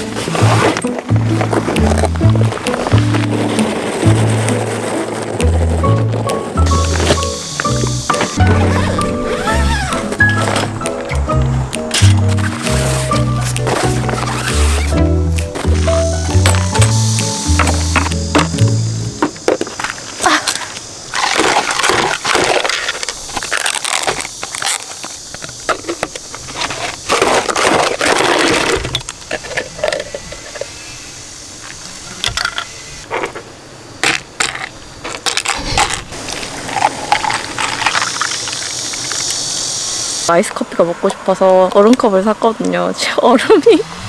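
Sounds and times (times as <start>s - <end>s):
plastic cup crinkling: 21.1s - 30.6s, 34.0s - 39.4s.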